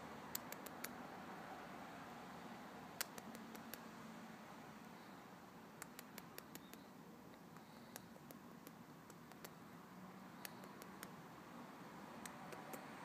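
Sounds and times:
tiny clicks and ticks: 0.3s - 1.0s, 3.0s - 3.8s, 5.8s - 9.6s, 10.4s - 11.2s.

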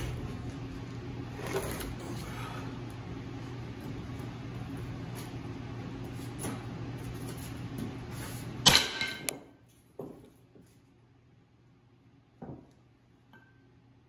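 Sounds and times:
low hum: 0.0s - 9.3s.

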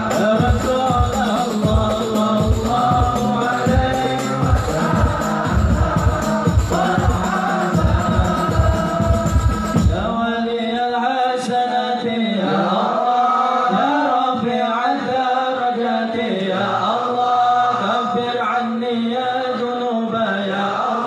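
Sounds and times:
drumbeats: 0.0s - 10.4s
men chanting in unison: 0.0s - 21.0s.

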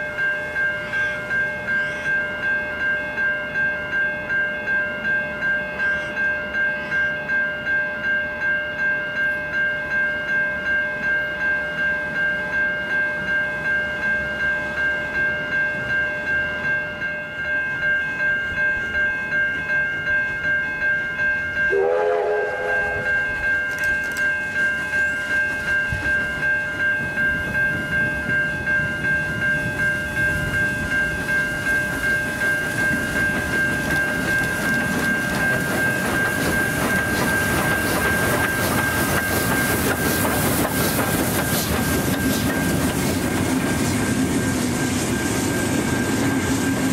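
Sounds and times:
level crossing bell ringing: 0.0s - 40.0s
train wheels on rails: 0.0s - 46.9s
steam locomotive whistle blast: 21.7s - 23.4s.

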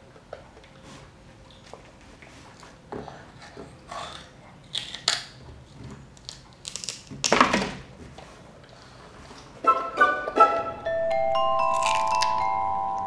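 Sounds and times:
child crunching raw broccoli: 3.4s - 5.4s, 6.1s - 7.3s, 11.6s - 12.6s.

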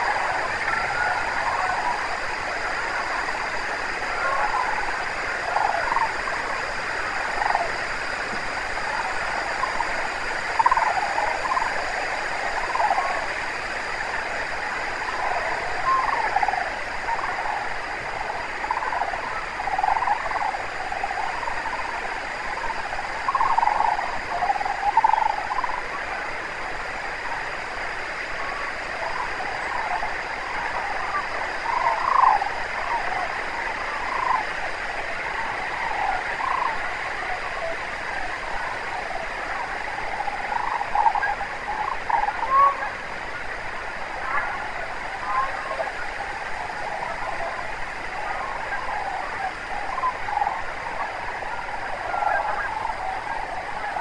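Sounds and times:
cranes calling: 15.0s - 25.9s, 28.4s - 54.0s.

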